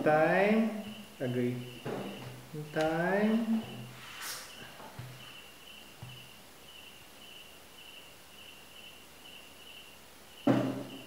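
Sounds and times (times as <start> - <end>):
cricket chirping: 0.0 - 11.0
loud thump: 10.5 - 11.0.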